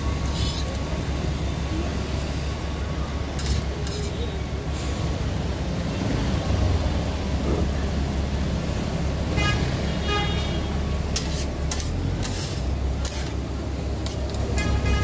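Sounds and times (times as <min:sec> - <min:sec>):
tongs and spatula scraping griddle: 0:00.2 - 0:00.8, 0:03.3 - 0:04.4, 0:11.1 - 0:15.0.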